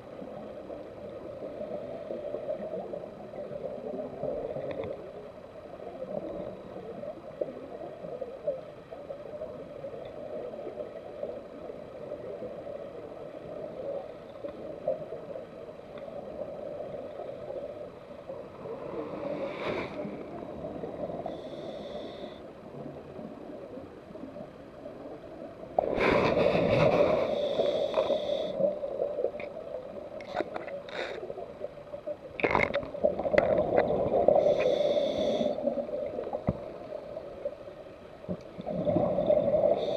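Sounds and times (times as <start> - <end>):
low underwater hum: 0.0 - 39.9
diver breathing through regulator: 19.1 - 20.2, 21.2 - 22.5, 25.8 - 28.7, 34.2 - 35.7
short hisses: 19.3 - 20.1
exhaled bubbles: 38.5 - 39.9.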